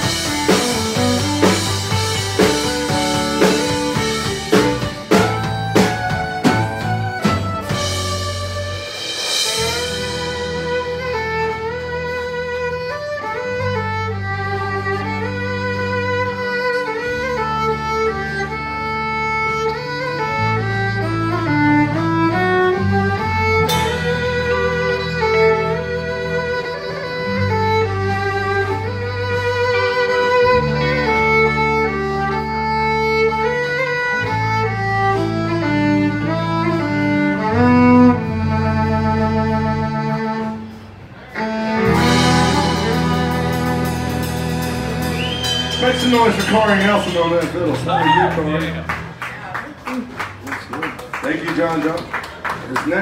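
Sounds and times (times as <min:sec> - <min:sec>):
sustained low bass notes: 0:00.0 - 0:50.4
fiddle melody: 0:00.0 - 0:53.0
cymbal crash: 0:23.7 - 0:25.2.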